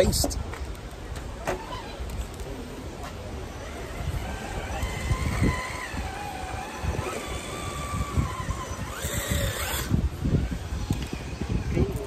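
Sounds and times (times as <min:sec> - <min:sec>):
electric motor and gears whining: 0:01.5 - 0:12.0.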